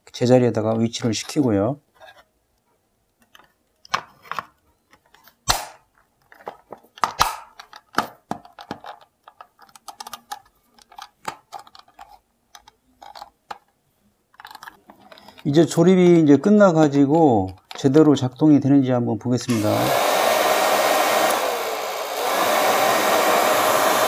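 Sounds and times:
plastic casing clicks and creaks: 3.1 - 15.8, 17.0 - 18.5.

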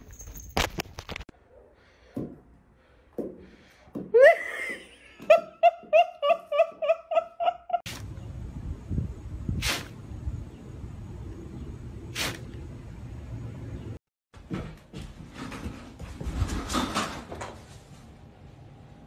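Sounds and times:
person laughing hard: 4.1 - 7.9.

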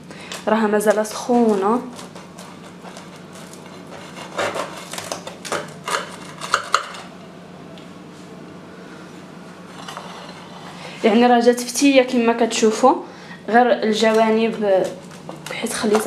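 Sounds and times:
faint room hum: 0.0 - 16.0
knife scraping baking tray: 0.8 - 7.1, 9.7 - 11.2.

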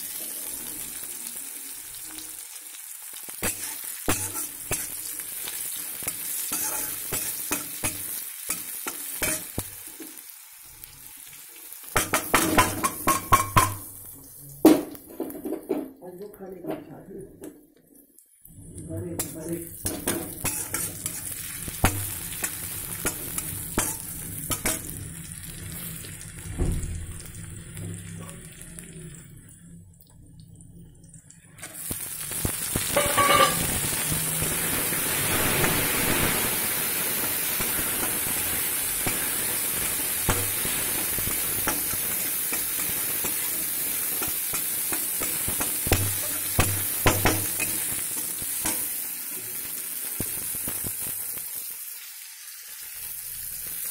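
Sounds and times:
loud steady sizzle: 0.0 - 15.2, 18.2 - 53.9
metal spatula scraping a wok: 3.4 - 9.6, 19.2 - 25.0, 32.8 - 35.4, 40.3 - 48.9.

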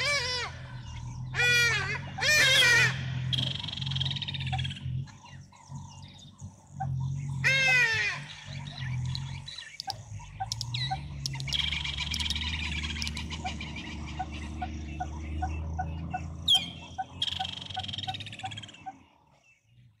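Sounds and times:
low hum: 0.0 - 19.0
birds trilling chirps: 0.0 - 20.0
even ticking bird call: 6.1 - 19.0.

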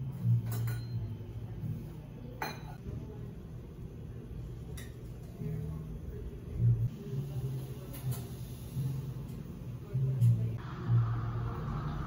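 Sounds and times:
dishware clinking: 0.4 - 1.1, 2.4 - 2.8.

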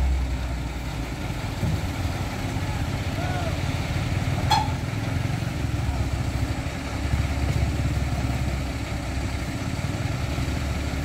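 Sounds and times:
truck engines idling: 0.0 - 11.0
motorcycle engine running: 4.5 - 11.0.

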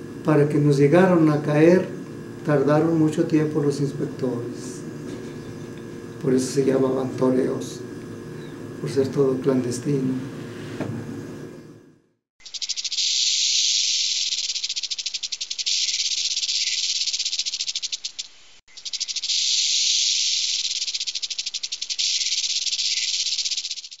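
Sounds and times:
rattlesnake rattling: 12.4 - 24.0.

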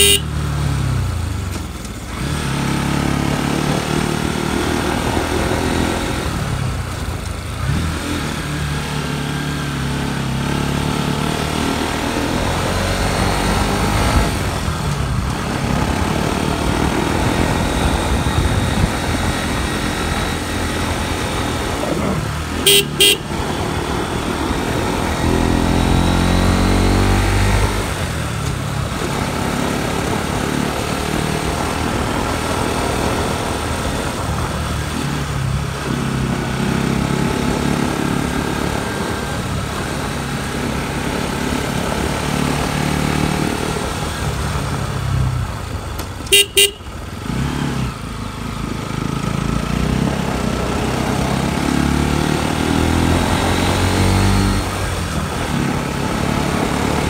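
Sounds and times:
motorcycle horn beeps: 0.0 - 0.5, 22.6 - 23.6, 46.3 - 47.1
motorcycle engine revving: 0.0 - 57.0.

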